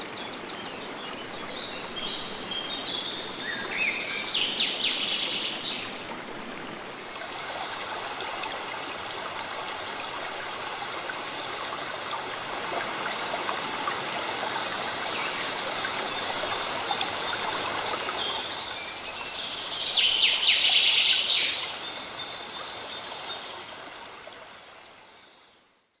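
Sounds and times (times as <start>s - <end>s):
bird singing: 0.0s - 6.0s
river water rushing over stones: 0.0s - 22.7s.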